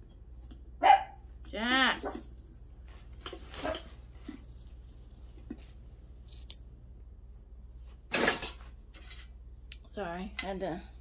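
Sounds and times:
rustles and clicks of handling: 0:01.4 - 0:06.7.

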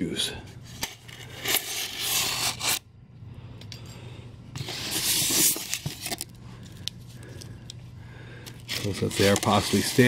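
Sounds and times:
packing tape tearing: 0:00.8 - 0:02.8
styrofoam scraping and rubbing: 0:00.8 - 0:02.8, 0:04.6 - 0:06.2, 0:08.7 - 0:10.0.

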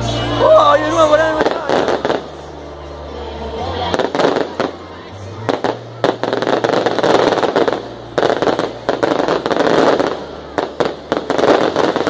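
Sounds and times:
fireworks crackling and popping: 0:00.3 - 0:02.8, 0:03.8 - 0:12.0.

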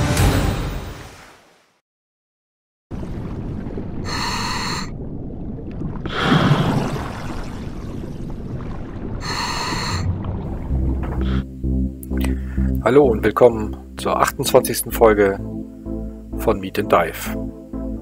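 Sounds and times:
exhaled bubbles rushing: 0:02.9 - 0:11.4.

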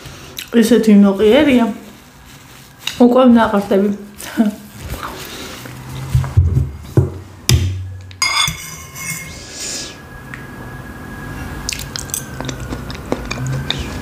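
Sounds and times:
metal fork clinking on bowl: 0:08.2 - 0:09.3
close-miked chewing: 0:11.7 - 0:14.0
wet mouth clicks: 0:11.7 - 0:14.0.

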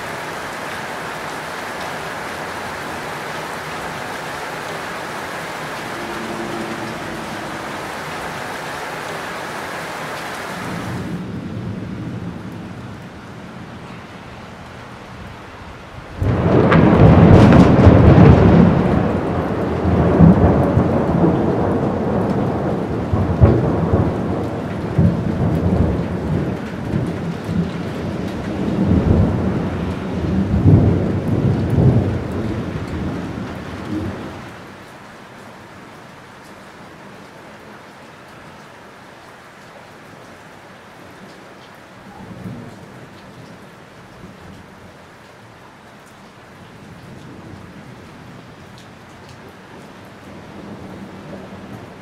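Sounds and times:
rain falling: 0:00.0 - 0:52.0
thunder crack and rumble: 0:16.1 - 0:34.6.

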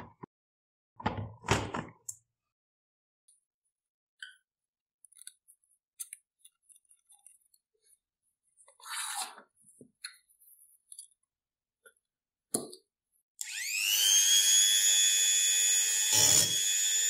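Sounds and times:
rotary tool motor whine: 0:13.4 - 0:17.0.

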